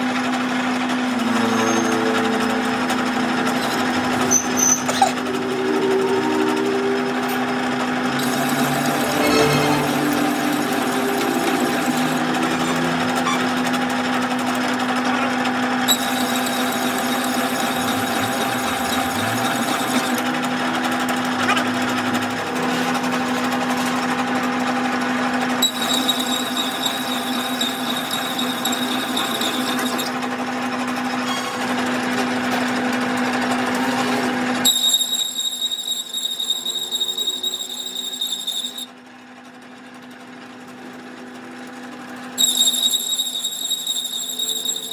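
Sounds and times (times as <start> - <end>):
metal lathe humming: 0.0 - 39.0, 40.0 - 44.9
high steady whine: 5.2 - 14.8.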